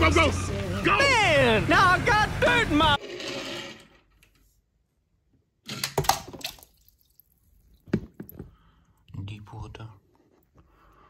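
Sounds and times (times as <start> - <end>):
toy splashing into water: 5.7 - 8.1.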